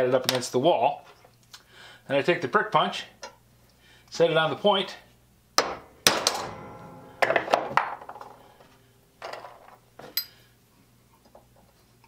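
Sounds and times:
hammer striking metal punch: 5.6 - 8.7.

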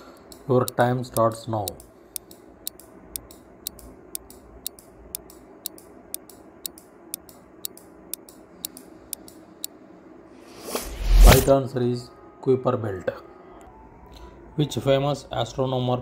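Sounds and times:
countdown timer ticking: 0.0 - 9.8
faint steady hum: 0.0 - 16.0.

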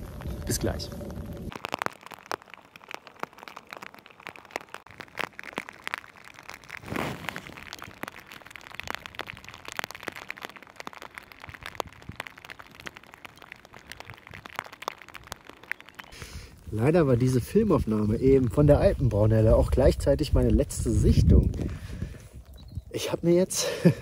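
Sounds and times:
gust of wind: 21.0 - 22.9.

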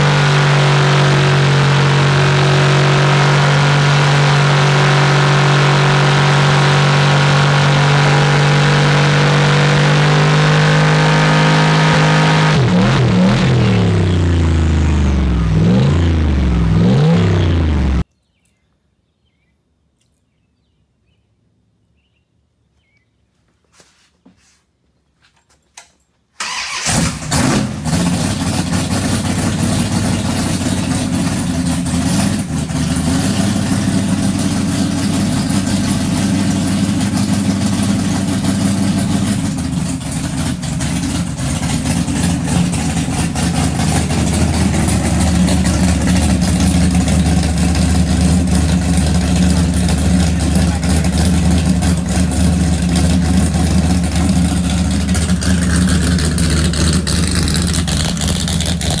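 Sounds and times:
engine lumpy idle: 27.8 - 59.0.

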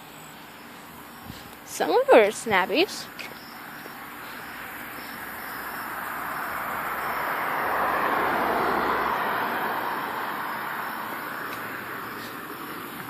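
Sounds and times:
car driving past: 3.4 - 13.0.

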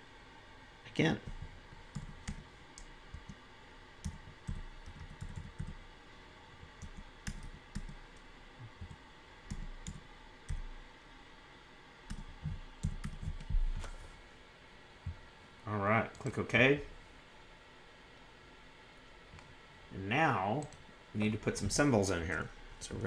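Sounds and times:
typing on computer keyboard: 4.0 - 5.8, 6.8 - 8.0, 12.1 - 13.5.

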